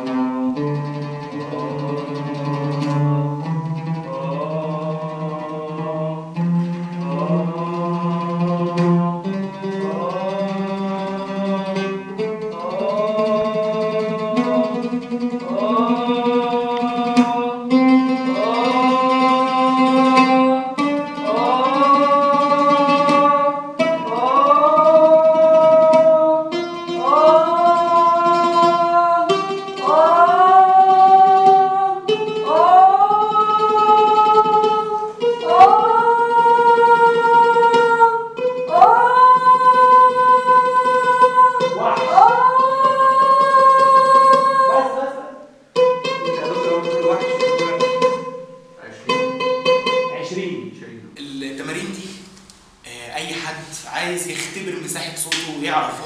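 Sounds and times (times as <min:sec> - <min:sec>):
man singing: 0:04.0 - 0:31.4, 0:38.7 - 0:45.3, 0:51.2 - 0:52.2, 0:52.9 - 0:56.0.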